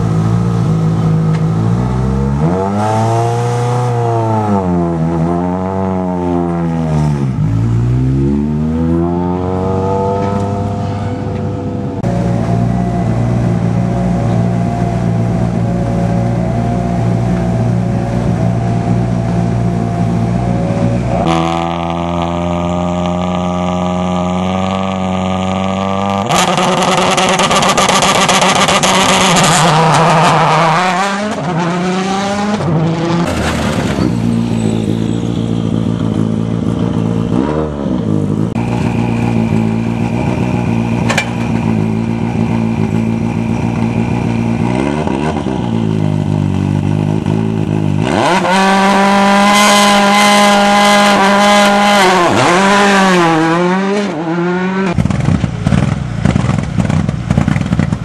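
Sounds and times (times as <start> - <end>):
rally car revving and launching: 0.0 - 58.0
rally car engines idling: 10.2 - 21.1, 37.9 - 48.0.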